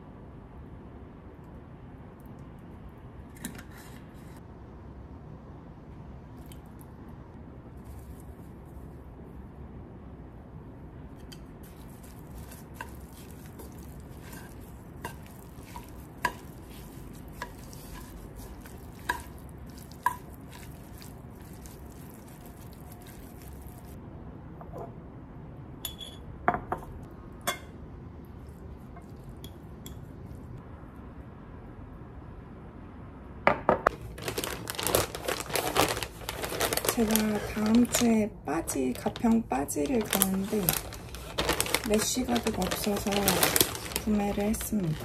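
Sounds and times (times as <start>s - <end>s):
chopsticks tossing carrots: 11.2s - 24.0s, 34.2s - 45.0s
chopsticks clinking on metal bowl: 12.4s - 22.1s.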